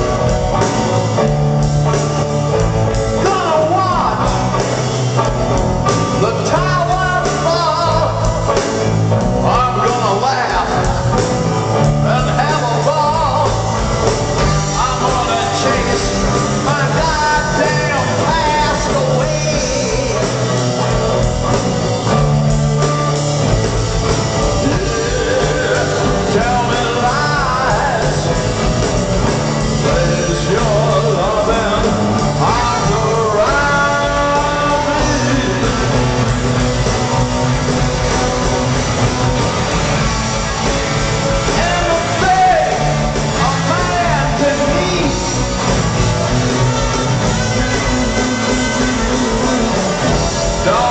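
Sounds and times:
live rock band playing: 0.0 - 50.9
man singing: 2.5 - 4.6, 5.2 - 21.4, 24.4 - 36.7, 41.3 - 50.9.

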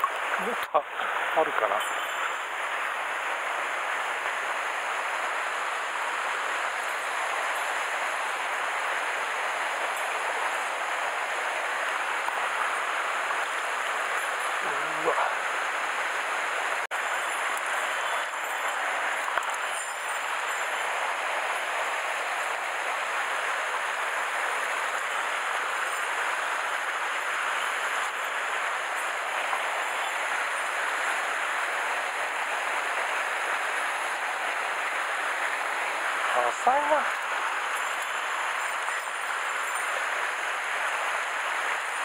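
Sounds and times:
stream rushing over rocks: 0.0 - 42.0.

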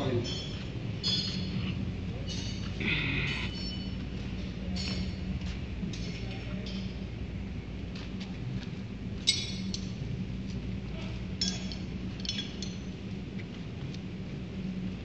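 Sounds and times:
ringing metallic clinks: 0.0 - 1.6, 2.2 - 5.2, 9.2 - 10.0, 11.4 - 13.0
low machinery hum: 0.0 - 15.0.

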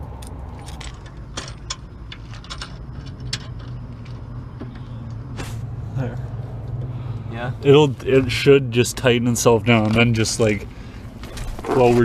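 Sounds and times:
low hum: 0.0 - 9.7
metal bolts clicking and tapping: 0.2 - 5.2.

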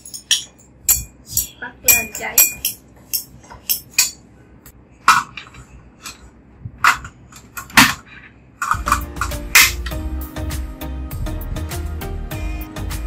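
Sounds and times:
metal spoon against ceramic bowl: 0.0 - 4.2
steady low hum: 0.0 - 13.0.

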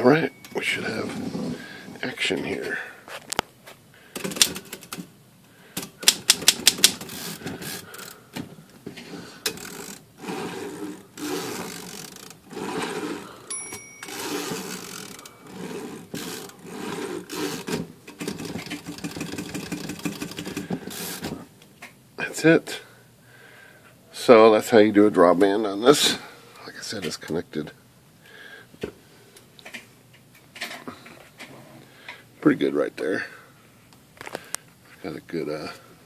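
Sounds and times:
typewriter carriage stepping: 5.8 - 7.8, 17.3 - 21.4
typewriter escapement clicking: 6.0 - 7.0.

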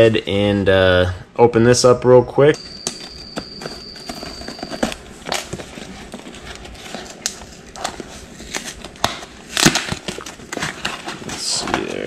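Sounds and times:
packing tape crackling: 2.9 - 12.0
cardboard scraping and rustling: 3.6 - 9.0, 9.7 - 12.0.

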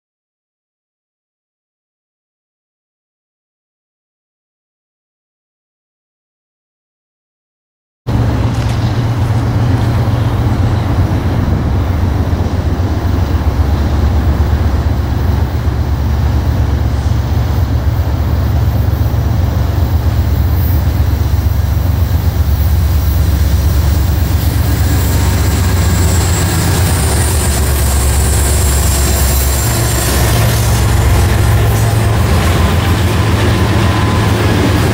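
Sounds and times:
freight train passing: 8.1 - 34.9
low rumble: 8.1 - 34.9
wheel and rail noise: 8.1 - 34.9.

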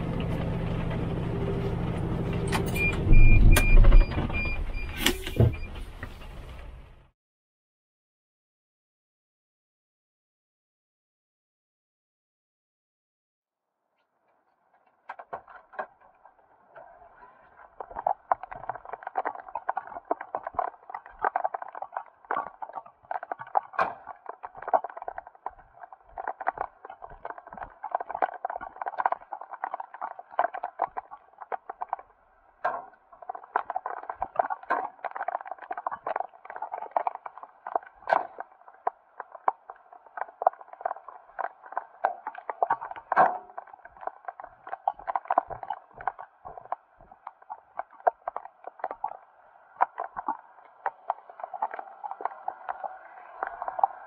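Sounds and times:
rain on a truck cab: 17.5 - 54.0.

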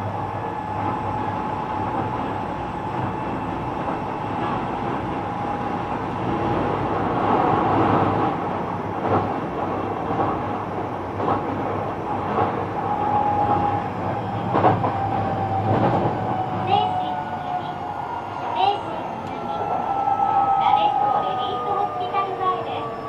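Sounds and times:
electric train rolling rumble: 0.0 - 23.0.

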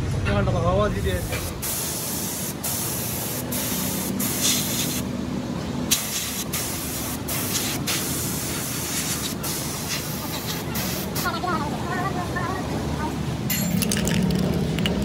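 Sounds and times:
spray gun hissing: 1.1 - 5.1, 5.9 - 11.4.

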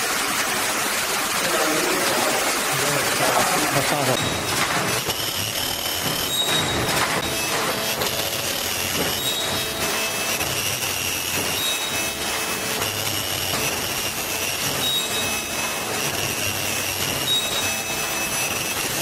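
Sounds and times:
machine running: 0.0 - 19.0
short high-pitched tones: 5.2 - 19.0.

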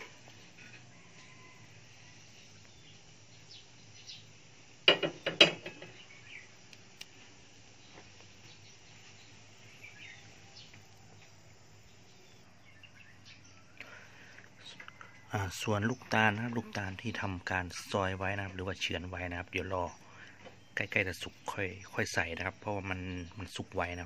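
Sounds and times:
faint bird chirps: 0.0 - 4.4, 5.1 - 6.6, 7.7 - 24.0
clatter of sharp knocks: 4.9 - 5.9.

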